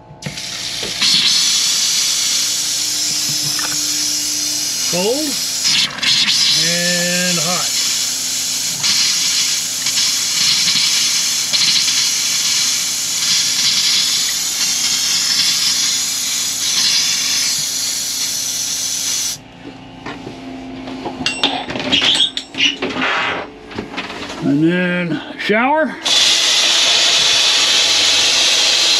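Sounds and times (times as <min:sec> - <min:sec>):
compressed air hissing from faucet: 0:00.2 - 0:19.4, 0:26.0 - 0:28.9
water spraying into steel sink: 0:00.3 - 0:19.4.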